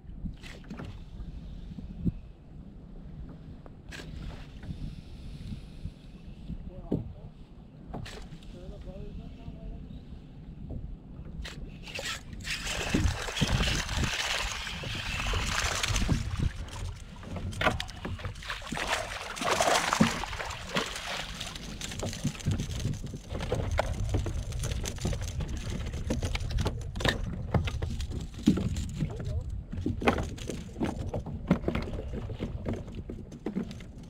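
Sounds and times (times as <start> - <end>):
wind rumble on microphone: 0.0 - 34.0
water splashing and sloshing: 0.3 - 1.5, 3.2 - 4.8, 11.4 - 34.0.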